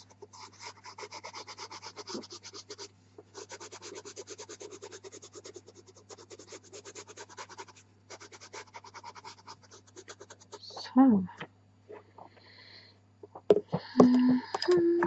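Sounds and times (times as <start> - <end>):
pastel pencil rubbing on paper: 0.0 - 10.8.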